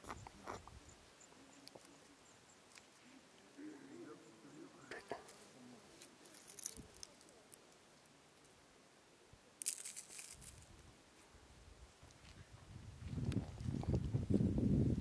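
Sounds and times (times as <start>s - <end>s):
dry dung pellets crunching: 5.2s - 7.6s, 9.6s - 10.8s.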